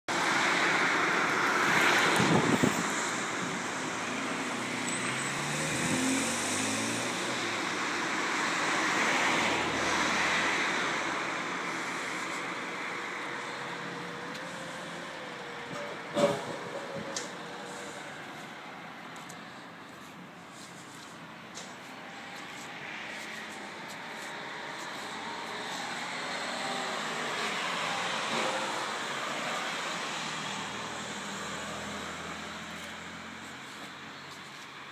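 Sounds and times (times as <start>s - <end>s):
road traffic passing: 0.1s - 34.9s.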